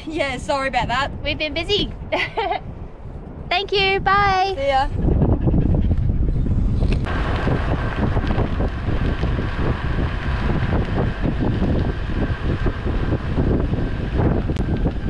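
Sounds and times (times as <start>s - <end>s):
vehicle engine and tyres rumbling: 0.0s - 15.0s
wind buffeting microphone: 0.0s - 15.0s
thin steady whine: 7.1s - 15.0s.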